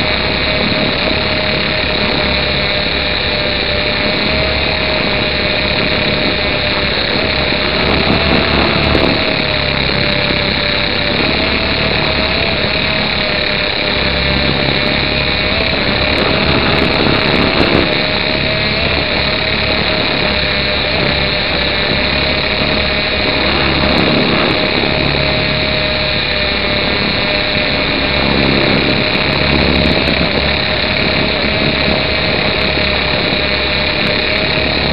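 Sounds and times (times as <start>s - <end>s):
rc helicopter motor whine: 0.0s - 34.9s.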